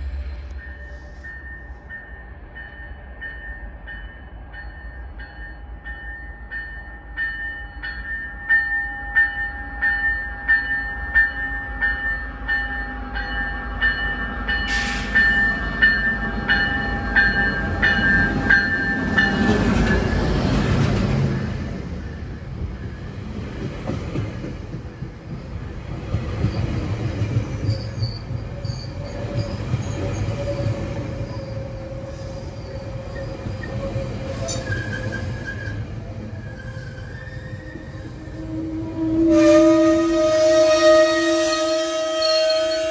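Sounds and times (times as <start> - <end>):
locomotive engine and wheels rumbling: 0.0 - 8.4, 9.6 - 40.3
locomotive bell ringing: 0.5 - 20.4.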